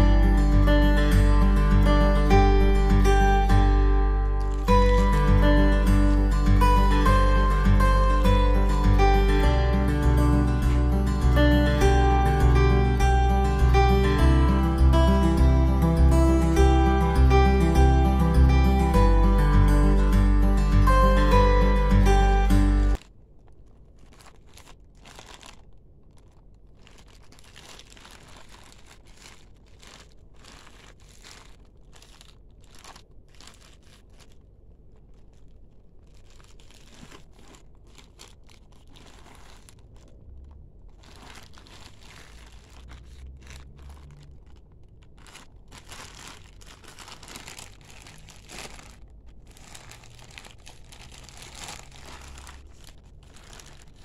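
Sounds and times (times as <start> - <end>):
plastic mailer bag crinkling: 2.6 - 14.1, 22.9 - 54.0.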